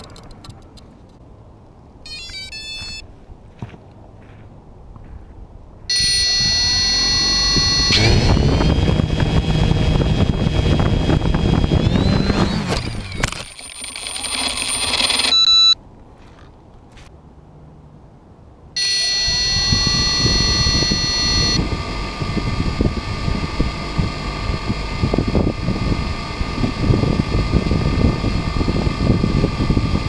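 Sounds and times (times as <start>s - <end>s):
drone motors whining: 5.9s - 15.8s, 18.8s - 30.0s.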